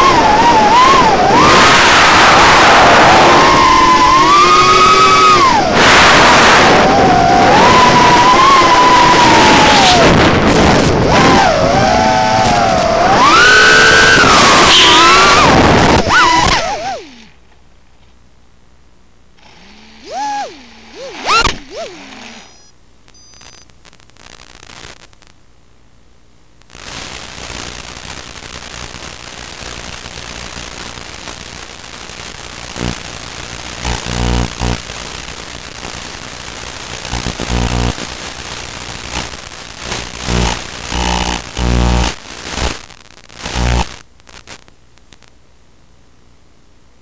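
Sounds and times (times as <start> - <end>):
drone motors whining: 0.0 - 17.3, 19.4 - 23.5, 32.7 - 34.8, 37.1 - 38.1, 39.9 - 42.7, 43.4 - 43.9
steady hiss with crackling: 0.0 - 19.5, 22.6 - 47.0
click: 12.4 - 12.9.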